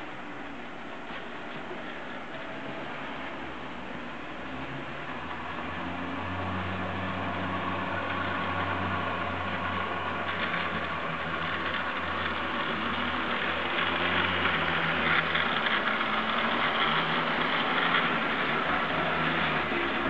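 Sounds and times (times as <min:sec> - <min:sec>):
model train motor hum: 0:00.0 - 0:20.0
wheels rattling over rails: 0:00.0 - 0:20.0.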